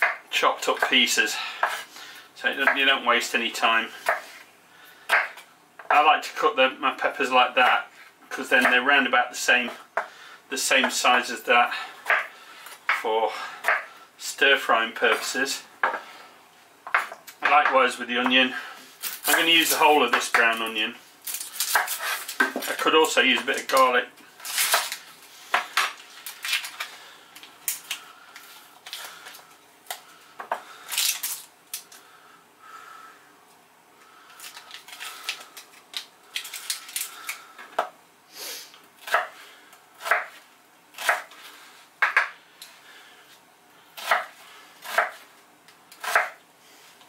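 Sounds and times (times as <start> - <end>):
knife chopping onion on board: 5.1 - 6.0, 40.0 - 40.4, 42.0 - 42.3, 44.0 - 45.2, 46.0 - 46.4
onion skin peeling: 30.9 - 32.0, 34.4 - 37.4.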